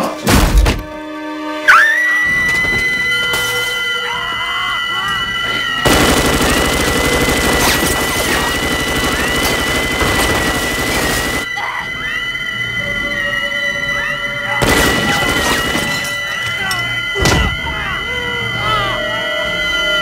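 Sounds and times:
automatic gunfire burst: 0:05.8 - 0:11.5, 0:14.6 - 0:16.0.

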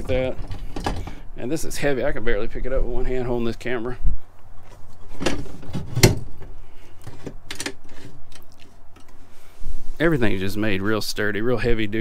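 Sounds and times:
heavy fitting knocks and clunks: 0:00.0 - 0:01.2, 0:05.1 - 0:07.8.

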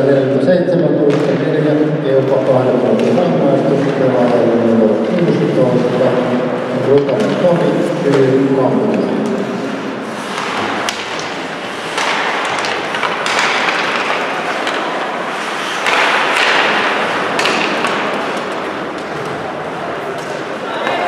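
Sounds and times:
hockey sticks and puck clacking: 0:01.0 - 0:21.0
skate blades scraping ice: 0:07.6 - 0:20.6.

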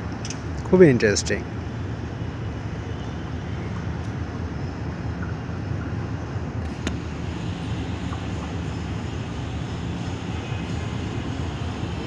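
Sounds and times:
sharp click: 0:00.1 - 0:00.4
freight train rumbling on rails: 0:01.3 - 0:12.0.

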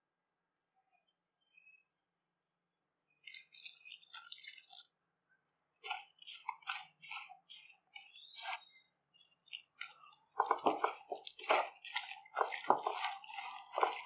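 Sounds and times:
hand squishing onion mixture: 0:03.2 - 0:14.0.

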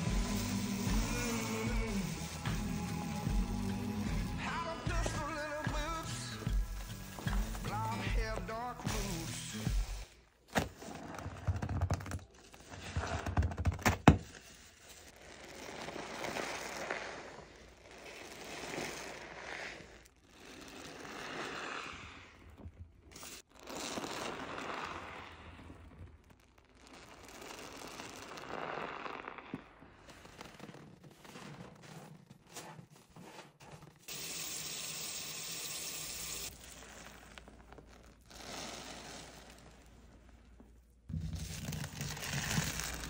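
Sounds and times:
sponge foam crackling: 0:00.0 - 0:34.1, 0:36.4 - 0:43.0
water squelching from sponge: 0:14.3 - 0:34.0, 0:36.5 - 0:43.0.

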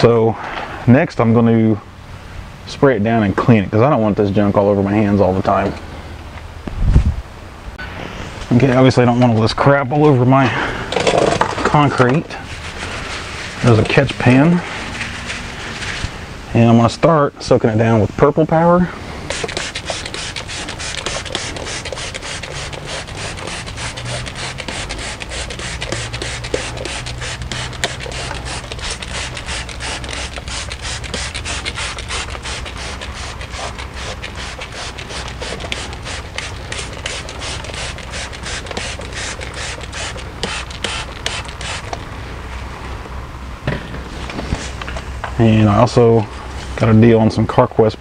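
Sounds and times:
trigger spray bottle spritzing: 0:19.2 - 0:42.0.

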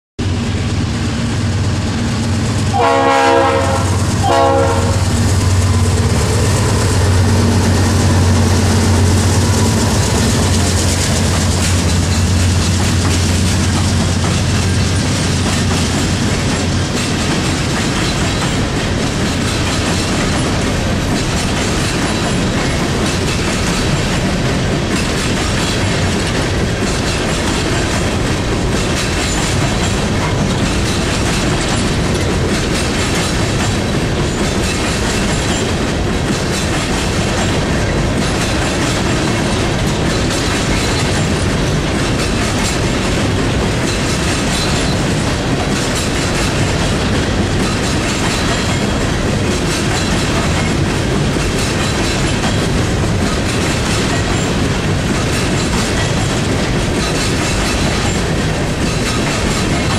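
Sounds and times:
model train horn blasts: 0:02.7 - 0:06.0
model train wheels rattling on track: 0:03.7 - 0:59.9.

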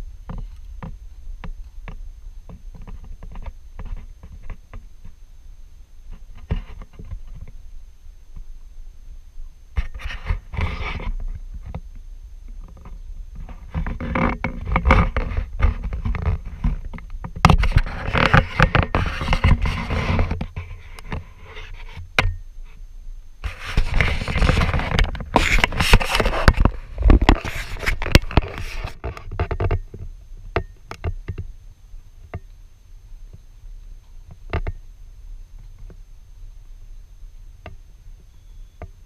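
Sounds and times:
camera handling scraping and rustling: 0:09.8 - 0:11.3, 0:13.4 - 0:22.0, 0:23.4 - 0:29.8.

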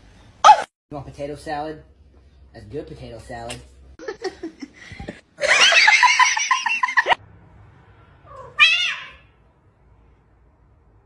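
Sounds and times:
cat meowing: 0:08.3 - 0:09.4.

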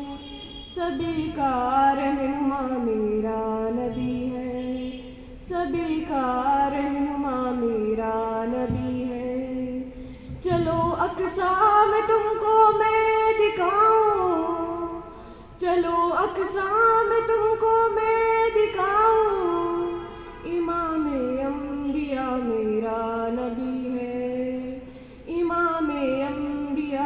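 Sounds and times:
girl singing unaccompanied: 0:00.0 - 0:27.0
breaths: 0:05.0 - 0:05.4, 0:09.9 - 0:10.4, 0:15.1 - 0:15.6, 0:24.8 - 0:25.3.

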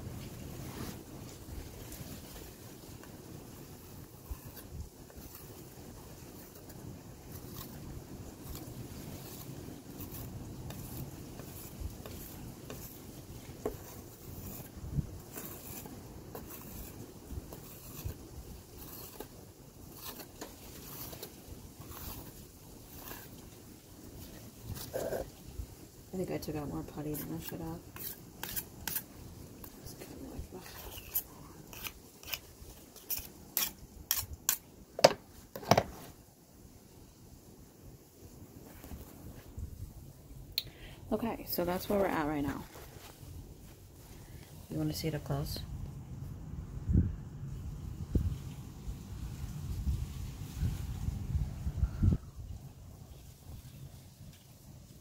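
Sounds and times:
wind rumble on microphone: 0:00.0 - 0:19.2, 0:38.6 - 0:40.4, 0:45.0 - 0:54.2
putty knife scraping wood: 0:08.4 - 0:13.0, 0:13.6 - 0:18.2, 0:18.8 - 0:23.4, 0:27.2 - 0:29.1, 0:30.6 - 0:36.1.

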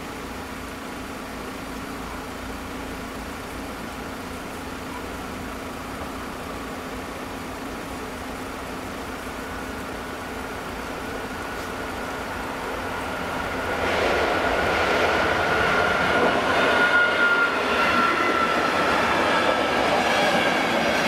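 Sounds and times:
car engine idling: 0:00.0 - 0:16.3.

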